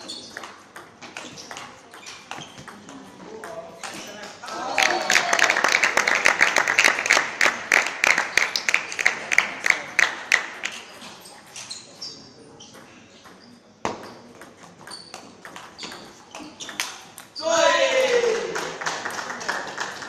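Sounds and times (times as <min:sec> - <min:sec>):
spectators clapping in rhythm: 0:04.4 - 0:10.8, 0:18.0 - 0:20.0.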